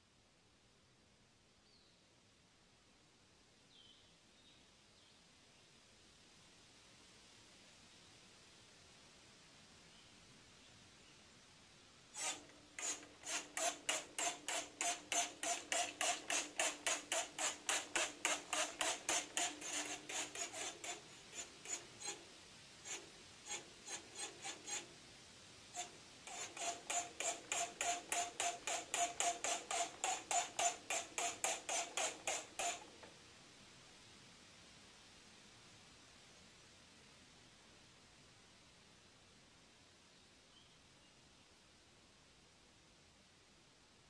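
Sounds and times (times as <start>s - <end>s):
trigger spray bottle spraying: 12.2s - 22.2s, 22.9s - 24.9s, 25.8s - 33.1s.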